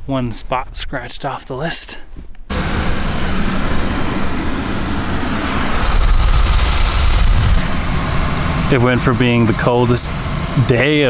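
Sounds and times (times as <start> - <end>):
air hiss: 2.5 - 8.7
car engine idling: 2.5 - 11.0.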